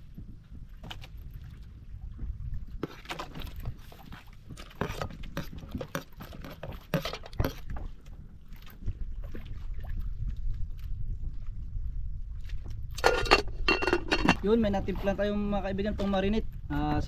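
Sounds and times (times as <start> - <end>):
low wind rumble: 0.0 - 17.0
utensils and dishes clinking: 13.0 - 14.4.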